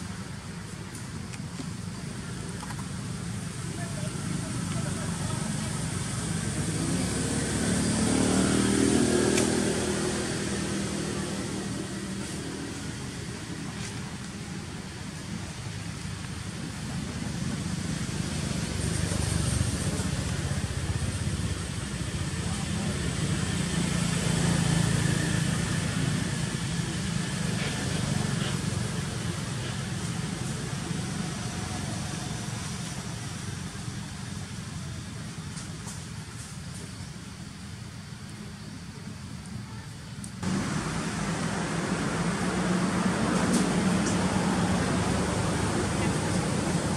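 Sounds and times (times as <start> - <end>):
motor rumbling with hiss: 0.1 - 46.9
vehicle engine passing by: 3.8 - 14.0, 16.9 - 30.1, 40.4 - 46.9.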